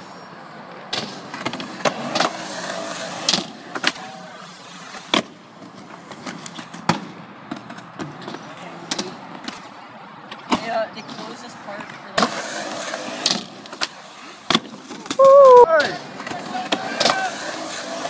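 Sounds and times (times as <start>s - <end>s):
skateboard wheels rolling on concrete: 0.0s - 18.0s
skateboard clacks: 0.8s - 4.3s, 10.3s - 18.0s.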